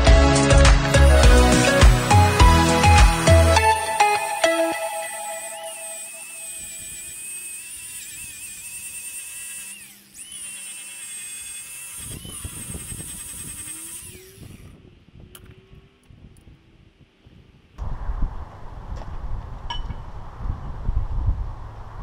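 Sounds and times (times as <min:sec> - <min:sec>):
angle grinder whining: 0:00.7 - 0:14.8
grinder rasping against metal: 0:00.8 - 0:04.1, 0:05.4 - 0:14.7.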